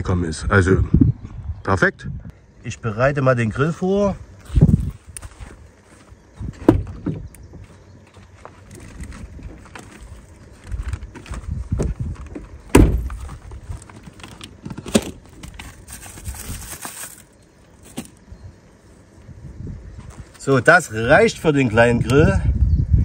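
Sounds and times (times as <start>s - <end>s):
loud knocks: 6.6s - 7.3s, 12.7s - 13.2s
things being handled: 8.0s - 18.2s.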